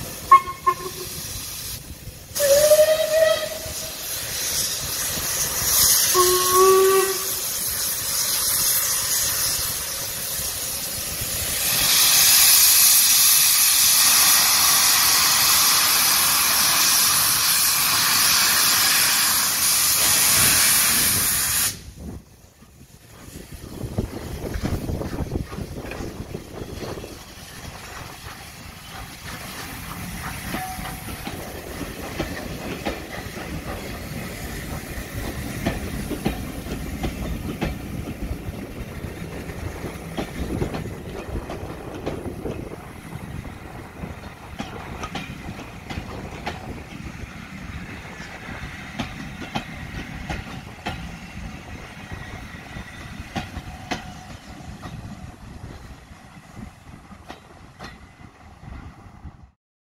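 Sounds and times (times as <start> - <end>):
train wheels clattering over rails: 22.5 - 58.9.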